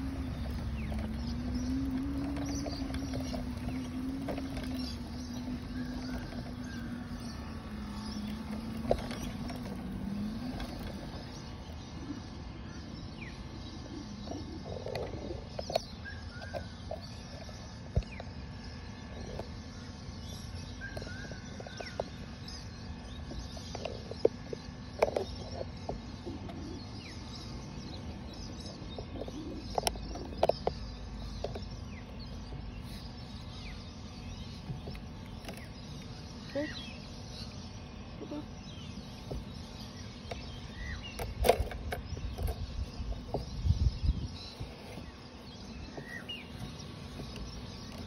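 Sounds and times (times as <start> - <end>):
low hum stepping down in pitch: 0.0 - 12.4
birds chirping: 0.0 - 48.0.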